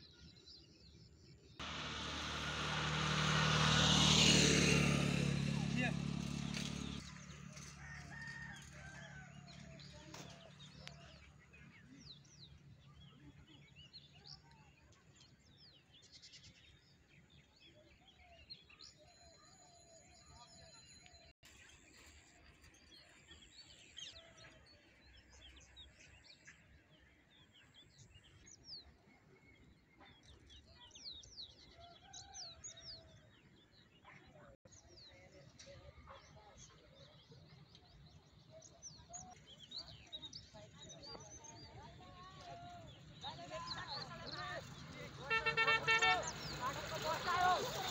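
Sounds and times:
vehicle low hum: 1.6s - 7.8s.

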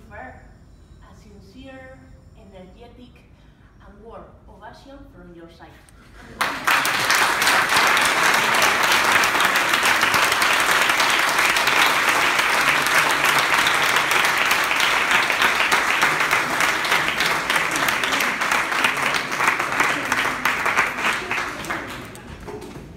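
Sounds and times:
audience applauding: 6.3s - 22.5s.

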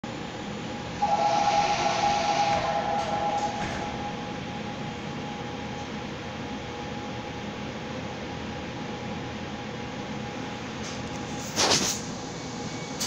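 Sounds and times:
standing train hum: 0.0s - 13.0s
two-note warning tone: 1.0s - 4.4s
subway doors knocking shut: 2.2s - 4.3s.

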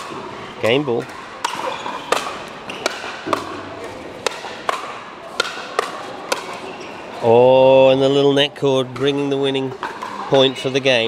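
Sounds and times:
paddles striking plastic ball: 1.0s - 6.6s.

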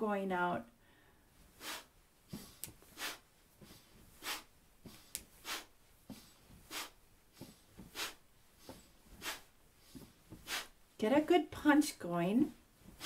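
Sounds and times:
sharp breaths through the nose: 0.8s - 10.8s
feet thumping on the floor: 2.3s - 10.7s, 12.8s - 13.0s.

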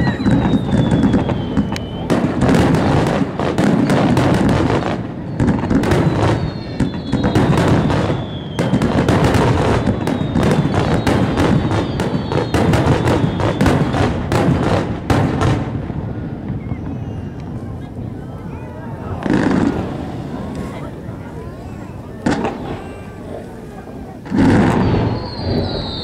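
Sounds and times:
fireworks bursting and crackling: 0.0s - 26.0s.

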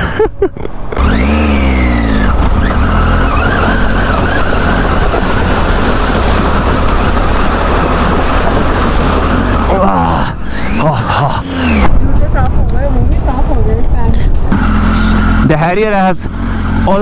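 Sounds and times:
motorcycle engine running: 0.8s - 17.0s
tyres splashing through water: 3.3s - 11.6s.

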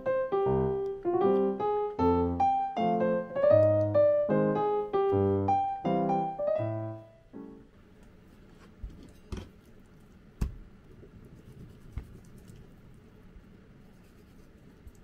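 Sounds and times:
piano music: 0.0s - 7.8s.

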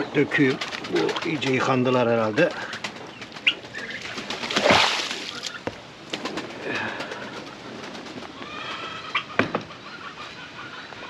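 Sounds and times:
bird calls: 0.0s - 11.0s
pigeons cooing: 0.0s - 11.0s
water splashing onto ground: 4.4s - 5.6s.

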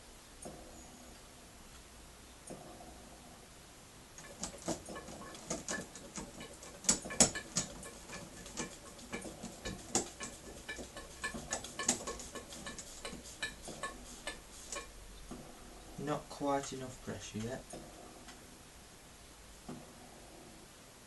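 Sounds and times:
model steam engine clicking: 4.2s - 14.9s.

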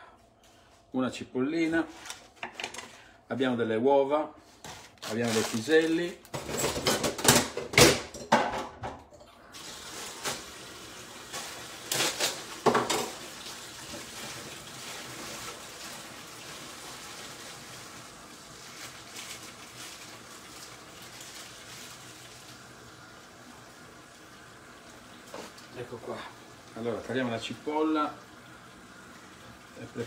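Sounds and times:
pots and utensils knocking: 6.4s - 9.0s.

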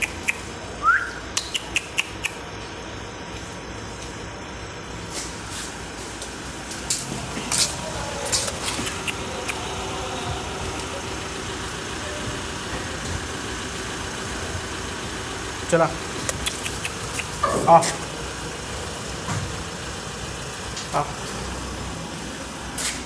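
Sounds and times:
sharp clicks: 0.0s - 0.5s, 1.3s - 2.4s, 8.3s - 9.6s, 16.2s - 17.4s
vehicle engine idling: 0.0s - 23.0s.

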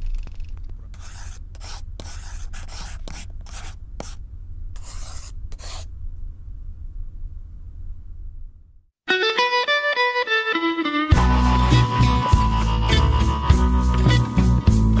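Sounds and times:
pen scratching on paper: 0.9s - 4.2s, 4.8s - 5.9s.

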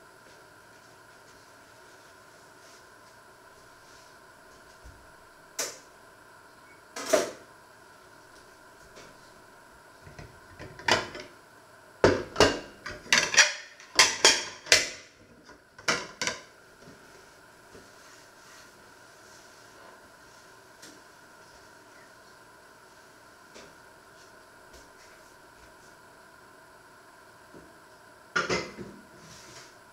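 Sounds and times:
plates set down on wooden table: 28.4s - 29.0s.

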